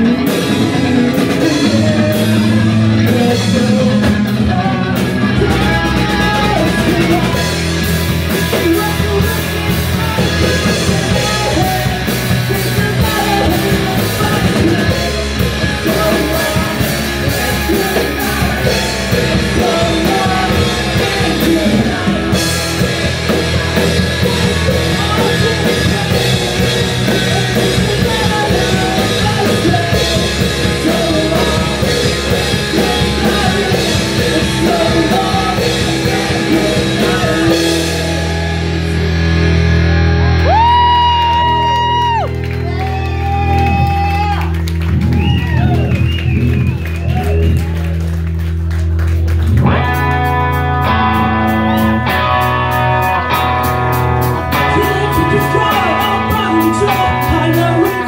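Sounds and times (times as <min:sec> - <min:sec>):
lead vocals singing: 0:00.0 - 0:39.0, 0:53.0 - 0:58.0
distorted electric guitar: 0:00.0 - 0:58.0
drum kit: 0:00.0 - 0:58.0
electric bass: 0:00.0 - 0:58.0.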